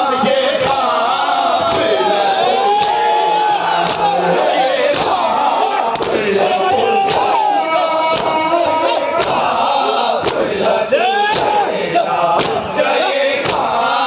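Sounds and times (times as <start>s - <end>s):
crowd chanting: 0.0s - 14.0s
chests struck in unison: 4.9s - 7.4s, 8.1s - 10.7s, 11.3s - 11.7s, 12.4s - 12.8s, 13.4s - 13.8s.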